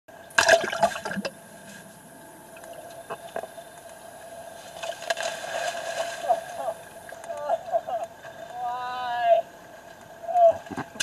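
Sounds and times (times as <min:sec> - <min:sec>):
skimboard sliding across water: 0:04.6 - 0:06.8
splashing in shallow water: 0:04.6 - 0:07.3.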